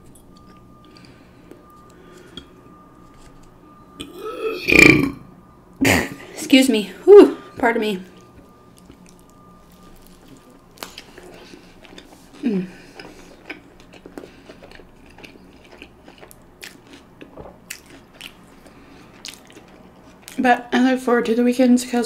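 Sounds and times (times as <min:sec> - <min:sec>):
person chewing food: 0:00.0 - 0:04.4, 0:08.1 - 0:20.4
falling voiced hum: 0:04.0 - 0:08.2, 0:11.2 - 0:13.0.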